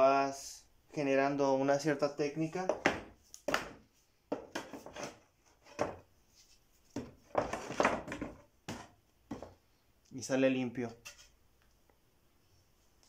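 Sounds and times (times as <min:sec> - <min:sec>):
hammer knocking on wooden boards: 0:02.6 - 0:05.0, 0:07.0 - 0:09.6.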